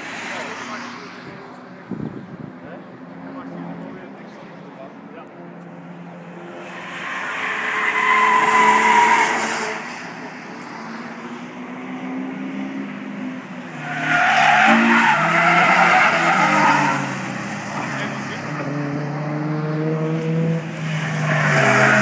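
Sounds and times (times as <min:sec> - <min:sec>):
race cars passing: 0:00.0 - 0:22.0.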